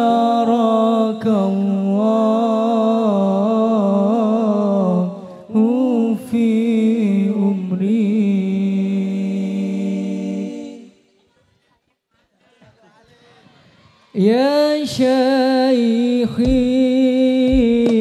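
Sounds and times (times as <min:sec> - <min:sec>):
man singing unaccompanied: 0:00.0 - 0:10.0, 0:14.2 - 0:18.0.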